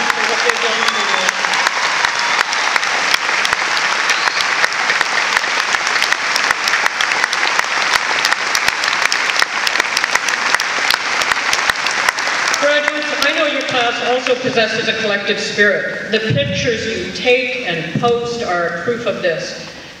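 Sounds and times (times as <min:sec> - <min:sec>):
large crowd applauding: 0:00.0 - 0:14.4.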